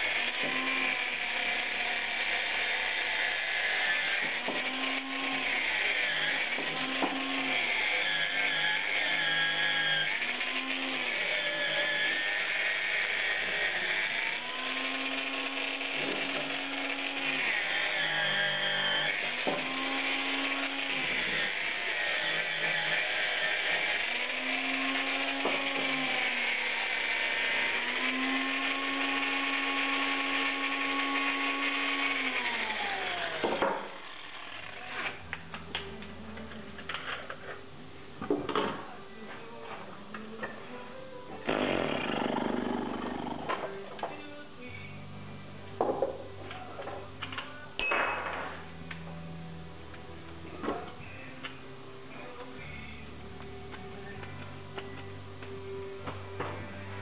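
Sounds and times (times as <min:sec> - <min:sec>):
angle grinder sanding metal: 0:00.0 - 0:35.2.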